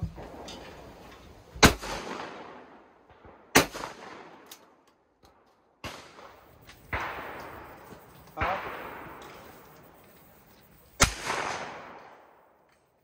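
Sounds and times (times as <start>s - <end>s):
shotgun shot with echo: 8.4s - 9.2s, 11.0s - 12.3s.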